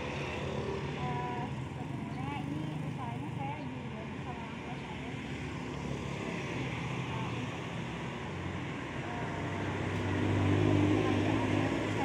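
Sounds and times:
street noise: 0.0s - 12.0s
vehicle engine passing: 4.6s - 12.0s.

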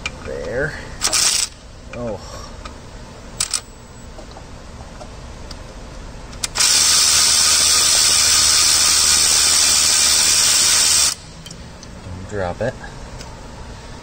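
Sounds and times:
power ratchet running: 1.0s - 1.6s, 6.4s - 11.3s.

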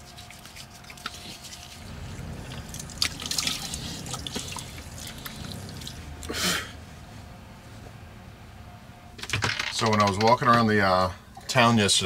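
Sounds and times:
water splashing and dripping: 2.6s - 5.9s.

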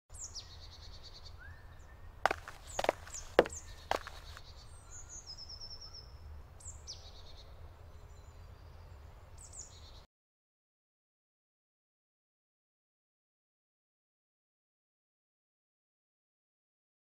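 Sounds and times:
birds singing: 0.1s - 10.1s
footsteps: 2.3s - 4.4s.

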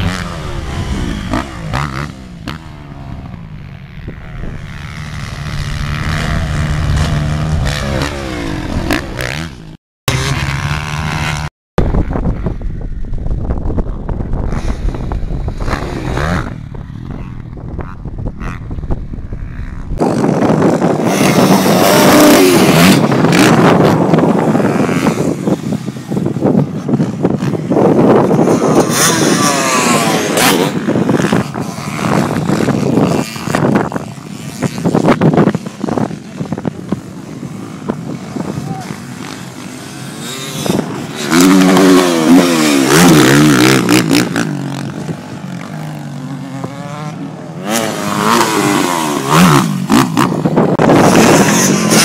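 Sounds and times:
wind rumbling on microphone: 0.0s - 9.8s, 10.5s - 52.0s
dirt bike engines revving: 0.0s - 12.6s, 13.6s - 52.0s.

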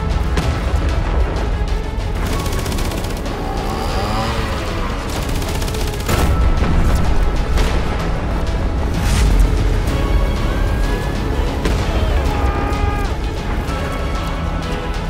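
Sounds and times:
music: 0.0s - 15.0s
rapid gunfire: 2.1s - 7.0s.

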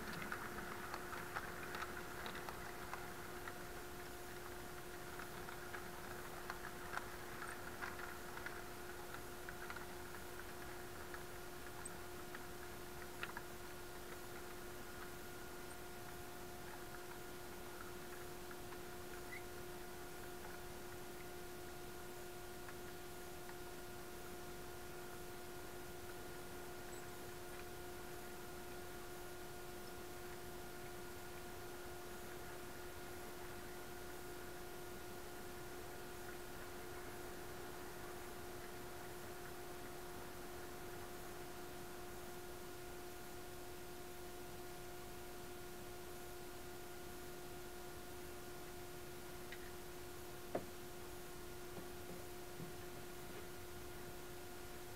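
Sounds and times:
faint ticks: 0.0s - 21.4s
faint electrical hum: 0.0s - 54.9s.

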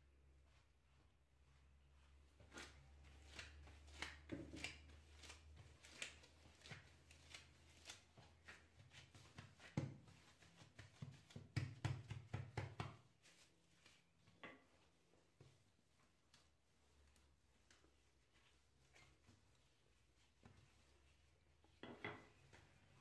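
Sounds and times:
hand patting dough: 0.4s - 23.0s
flour scattering taps and rustles: 2.4s - 15.6s.

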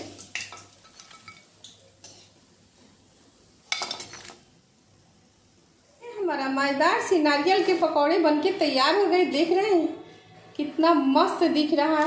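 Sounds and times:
food clattering onto plate: 3.7s - 4.4s.

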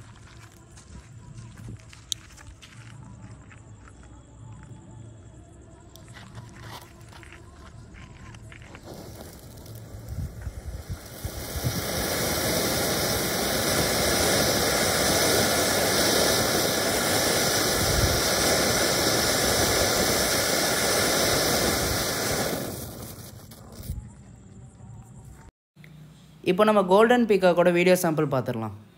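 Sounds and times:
fuse sputtering and crackling: 6.6s - 24.1s
firework fountain hissing: 8.7s - 24.0s
firework pops: 8.7s - 24.0s.

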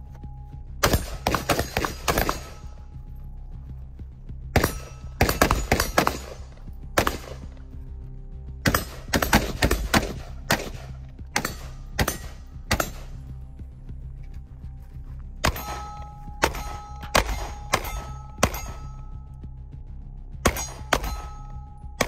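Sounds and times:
background music: 0.0s - 22.0s
rifle shots: 0.8s - 2.8s, 4.6s - 7.6s, 8.6s - 13.2s, 15.4s - 19.0s.

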